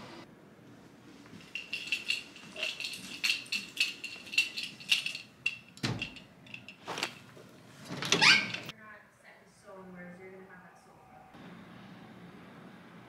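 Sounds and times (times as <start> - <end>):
footsteps with metallic jingle: 1.2 - 7.4.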